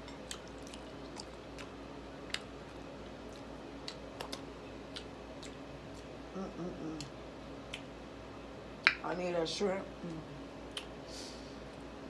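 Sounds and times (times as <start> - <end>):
clicks and smacks of eating: 0.0 - 6.2, 7.0 - 7.9, 8.8 - 9.0, 10.1 - 11.0
low steady hum: 0.0 - 12.0.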